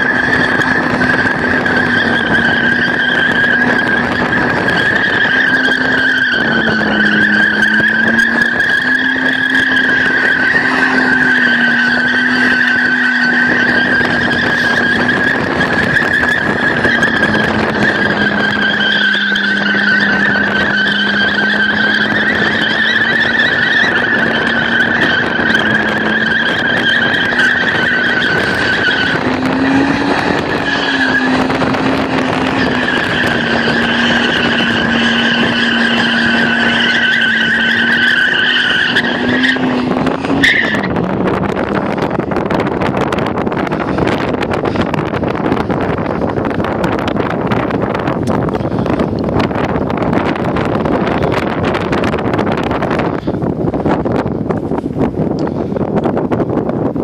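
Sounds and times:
tyres squealing: 0:00.0 - 0:49.2
car engine at high revs: 0:00.0 - 0:57.0.

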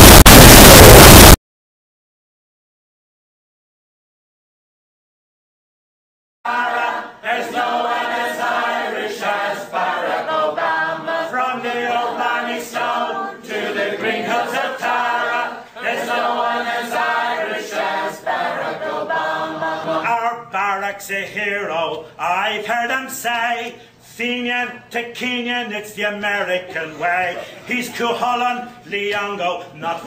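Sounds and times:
voices singing unaccompanied: 0:06.5 - 0:20.2.

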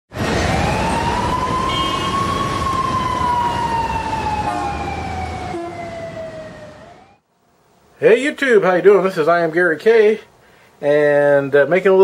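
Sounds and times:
siren-like wail: 0:00.2 - 0:07.2.

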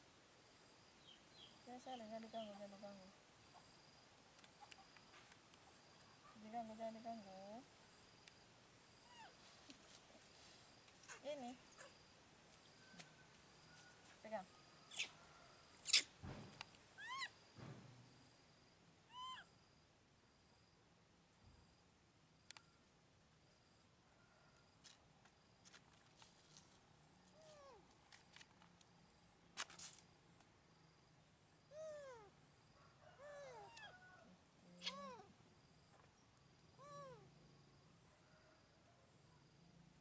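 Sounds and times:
baby monkey coo calls: 0:14.9 - 0:15.2, 0:15.8 - 0:16.1, 0:17.0 - 0:17.3, 0:19.1 - 0:19.5, 0:33.2 - 0:34.0, 0:34.8 - 0:35.3
baby monkey squealing: 0:14.9 - 0:15.2, 0:15.8 - 0:16.1, 0:17.0 - 0:17.3, 0:19.1 - 0:19.4.

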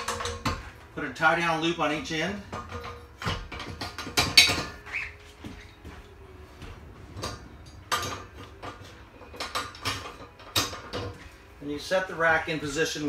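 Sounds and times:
metal knocks and clanks: 0:00.0 - 0:00.9, 0:02.0 - 0:11.4.

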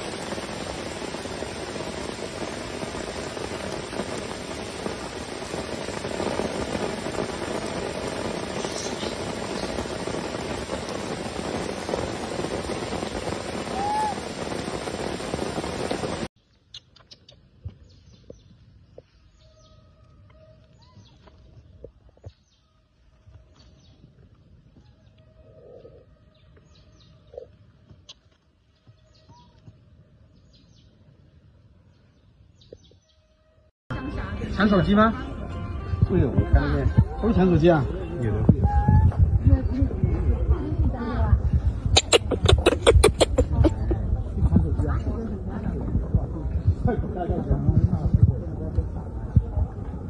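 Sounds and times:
steady rain falling: 0:00.0 - 0:16.3, 0:42.0 - 0:50.0.

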